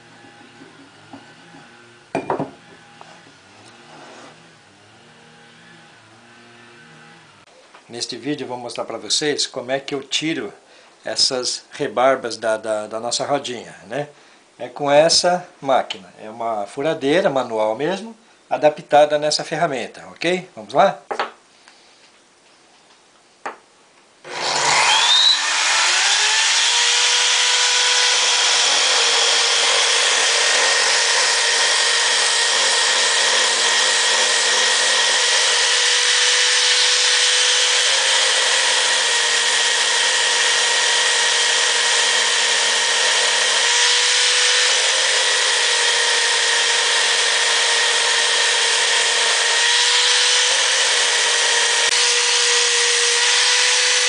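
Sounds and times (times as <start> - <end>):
wooden wheel being sanded: 0.0 - 2.0, 2.6 - 7.2, 24.3 - 54.0
electric drill whining: 0.0 - 7.5, 24.2 - 54.0.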